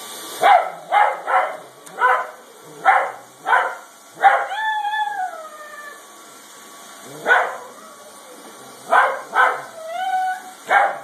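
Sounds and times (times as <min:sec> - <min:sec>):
dog barking sharply: 0:00.4 - 0:02.3, 0:10.7 - 0:11.0
dog howling: 0:00.8 - 0:06.1, 0:07.0 - 0:11.0.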